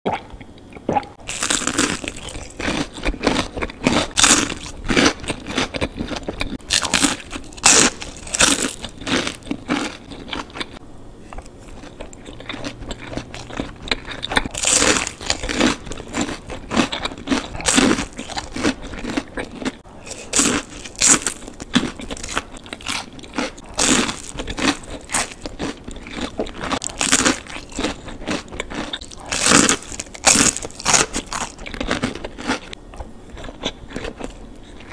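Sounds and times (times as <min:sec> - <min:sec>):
crunching fried food: 0:00.1 - 0:34.9
quiet chewing: 0:08.8 - 0:20.4, 0:21.0 - 0:34.9.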